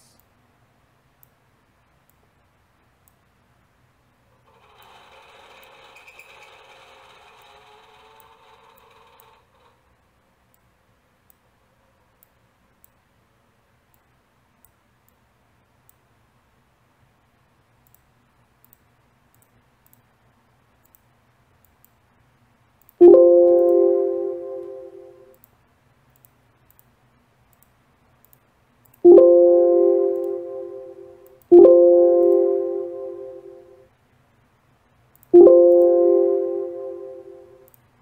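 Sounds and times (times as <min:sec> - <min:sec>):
faint mouse clicks: 0:01.2 - 0:01.4, 0:02.0 - 0:02.3, 0:03.0 - 0:03.3, 0:10.5 - 0:11.5, 0:12.1 - 0:13.1, 0:13.8 - 0:15.2, 0:15.8 - 0:16.1, 0:17.8 - 0:20.1, 0:20.8 - 0:22.0, 0:22.8 - 0:23.8, 0:25.3 - 0:29.0, 0:35.1 - 0:35.9, 0:37.6 - 0:37.9
computer alert chime: 0:23.0 - 0:25.3, 0:29.0 - 0:33.8, 0:35.4 - 0:37.6.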